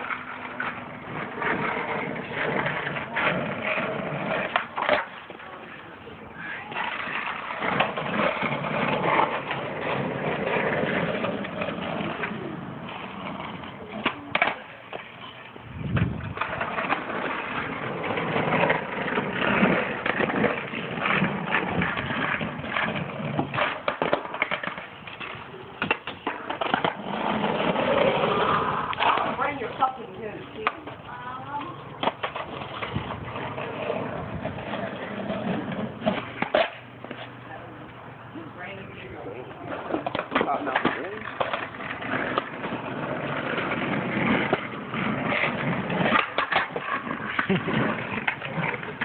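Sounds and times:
skateboard deck clacking on ground: 0:00.0 - 0:05.7, 0:06.4 - 0:37.4, 0:39.6 - 0:49.0
skateboard wheels rolling on asphalt: 0:00.0 - 0:49.0.

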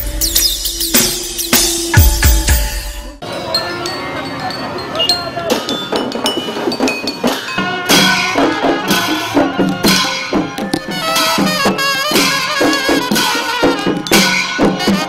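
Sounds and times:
barrel drum strikes: 0:05.9 - 0:15.0
brass band playing: 0:07.5 - 0:15.0.

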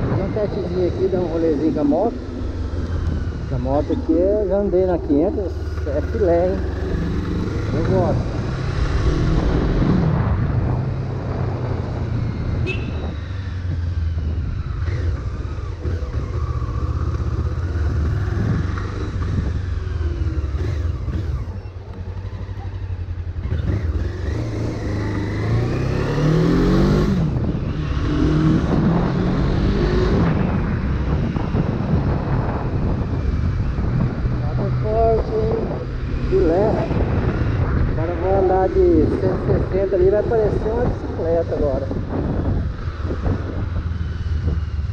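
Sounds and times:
motorcycle engine running: 0:00.0 - 0:09.9, 0:10.6 - 0:29.1.

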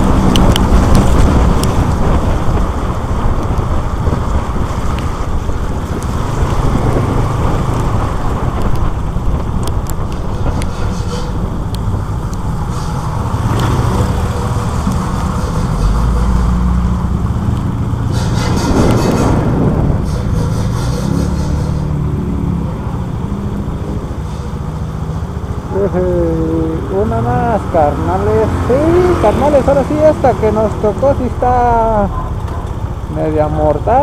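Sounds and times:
wind rumble on microphone: 0:00.0 - 0:34.0
motorcycle engine running: 0:11.2 - 0:24.0.

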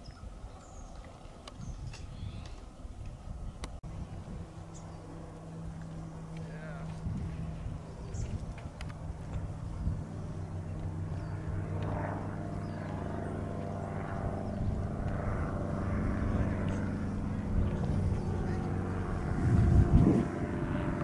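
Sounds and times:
steady engine drone: 0:00.0 - 0:21.0.

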